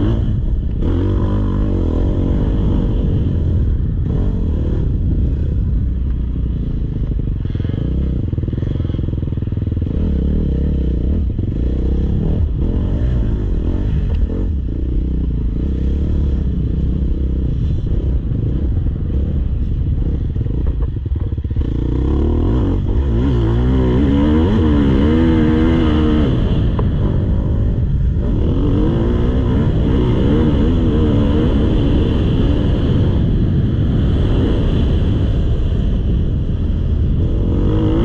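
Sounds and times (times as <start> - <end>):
motocross bike engine revving: 6.6 - 35.4, 37.1 - 38.0.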